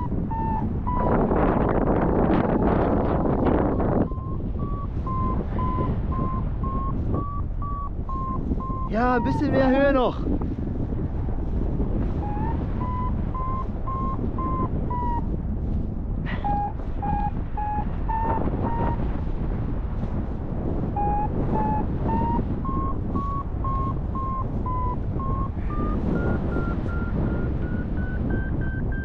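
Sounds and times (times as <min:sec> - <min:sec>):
variometer beeping in short pulses: 0:04.0 - 0:10.0, 0:12.2 - 0:15.2, 0:16.4 - 0:18.9, 0:21.0 - 0:29.0.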